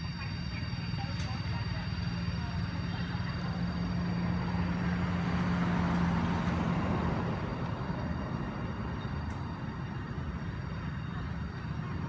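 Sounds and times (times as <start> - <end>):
vehicle driving past: 3.5 - 10.8.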